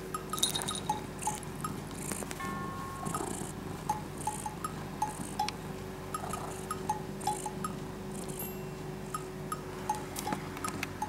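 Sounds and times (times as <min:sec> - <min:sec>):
bell-like plinking music: 0:00.1 - 0:01.8, 0:02.4 - 0:05.5, 0:08.4 - 0:10.8.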